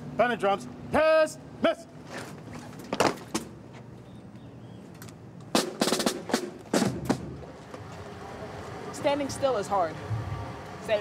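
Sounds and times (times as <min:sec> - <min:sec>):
drum hits: 0:05.5 - 0:07.5.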